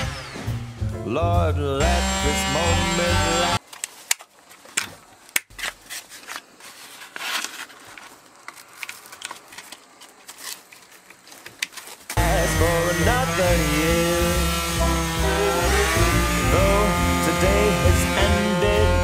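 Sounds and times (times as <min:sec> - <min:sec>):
sandpaper rustling: 0:05.5 - 0:12.2.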